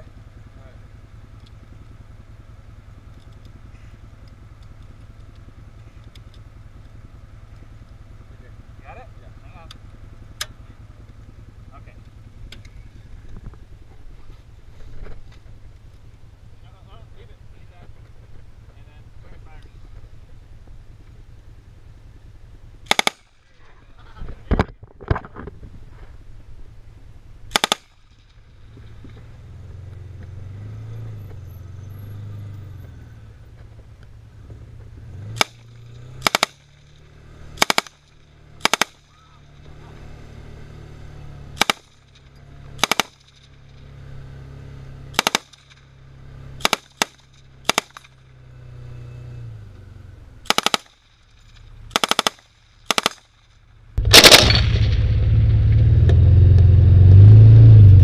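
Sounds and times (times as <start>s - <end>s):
engine droning low: 0.0s - 58.0s
machine gun bursts: 27.5s - 27.9s, 36.2s - 36.6s, 37.6s - 38.0s, 38.6s - 39.0s, 41.6s - 42.0s, 42.8s - 43.3s, 45.2s - 45.6s, 50.5s - 50.9s, 51.9s - 53.2s, 54.0s - 54.9s.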